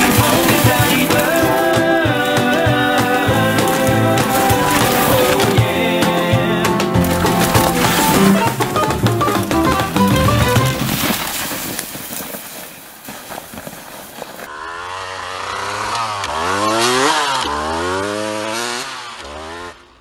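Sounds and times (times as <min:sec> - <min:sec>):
music: 0:00.0 - 0:11.0
dirt bike engine revving: 0:00.0 - 0:11.2, 0:14.5 - 0:20.0.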